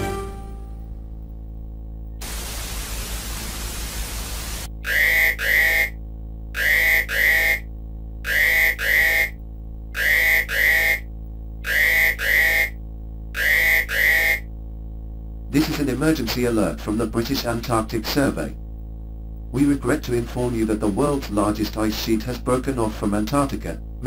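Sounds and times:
steady low hum: 0.0 - 24.0
static hiss: 2.1 - 5.6.

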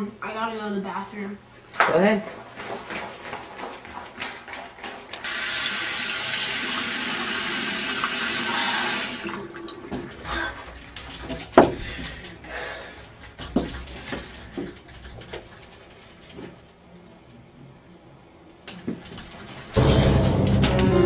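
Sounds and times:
tap water running into sink: 5.2 - 10.2.

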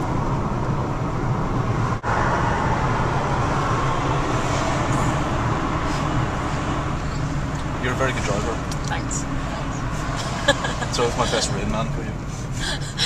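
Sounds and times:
car road and engine noise: 0.0 - 13.0.

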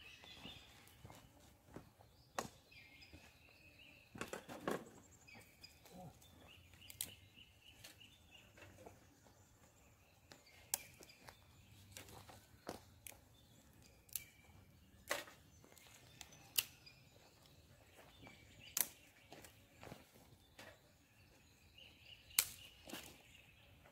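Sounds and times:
faint bird calls: 5.3 - 9.1.

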